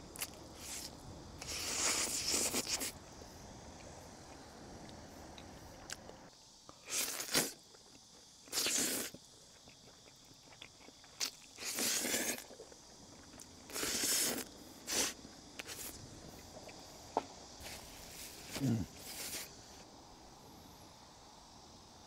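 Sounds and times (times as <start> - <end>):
short crunching scraping sounds: 17.6 - 19.5.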